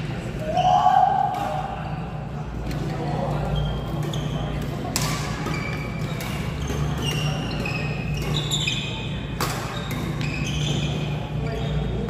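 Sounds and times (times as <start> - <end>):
shoes squeaking on court floor: 3.2 - 12.0
racket striking shuttlecock: 4.0 - 8.5, 9.3 - 11.0.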